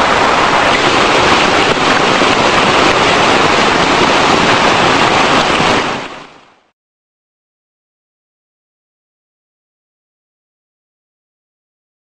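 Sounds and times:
rainwater rushing through channel: 0:00.0 - 0:06.7.

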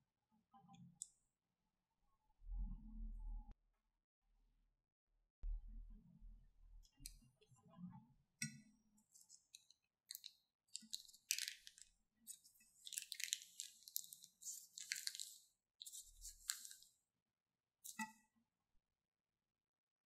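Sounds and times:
plastic piping bag crinkling: 0:09.1 - 0:17.0.

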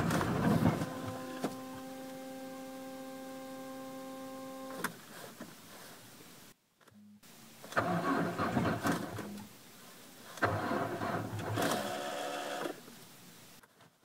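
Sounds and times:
starter motor cranking engine: 0:07.7 - 0:09.3, 0:10.4 - 0:12.8.

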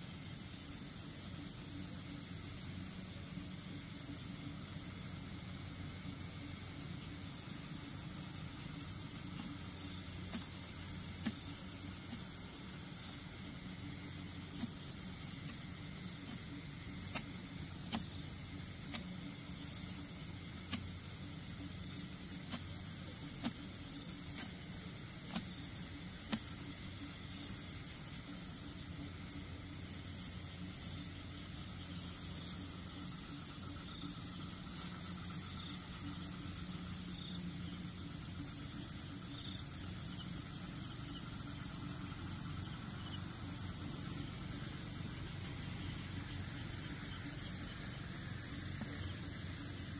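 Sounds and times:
insects trilling: 0:00.0 - 0:49.9
low hum: 0:00.0 - 0:49.9.

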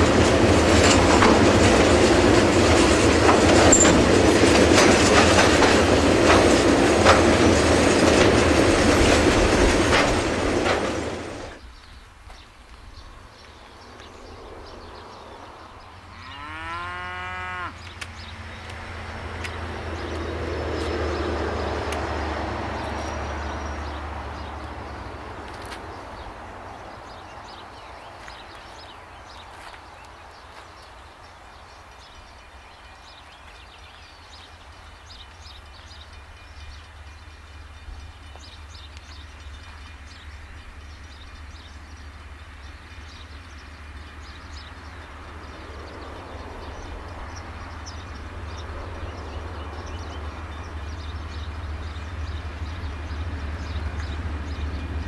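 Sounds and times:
low rumbling rush: 0:00.0 - 0:29.4, 0:37.8 - 0:55.0
cow mooing: 0:16.1 - 0:17.8.

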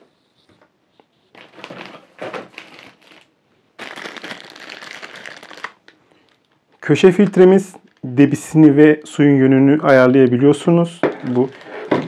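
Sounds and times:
plastic bag crinkling: 0:01.3 - 0:09.2, 0:10.9 - 0:12.0.

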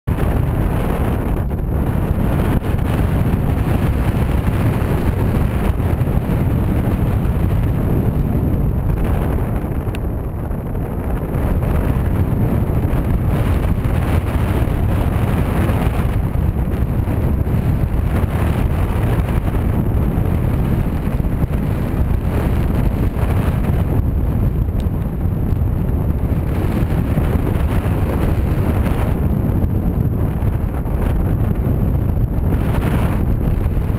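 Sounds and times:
wind buffeting microphone: 0:00.1 - 0:33.9.

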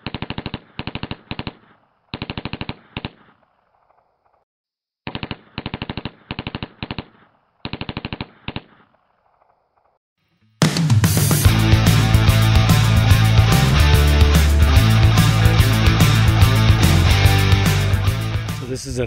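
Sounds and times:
machine gun bursts with echo: 0:00.0 - 0:03.4, 0:05.1 - 0:09.0.

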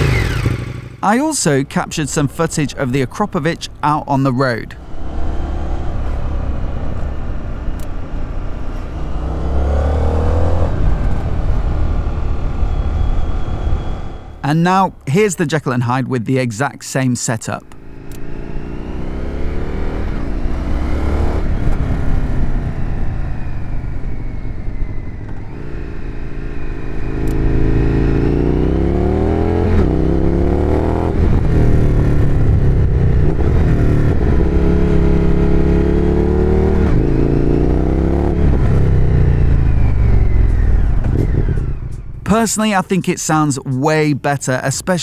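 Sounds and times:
motorcycle engine revving: 0:00.0 - 0:01.0, 0:04.8 - 0:14.4, 0:17.7 - 0:42.2.

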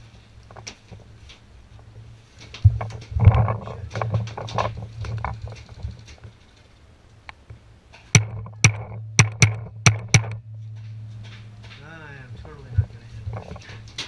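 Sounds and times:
steady low hum: 0:00.0 - 0:14.0
sharp paintball shots cracking: 0:08.2 - 0:10.9.

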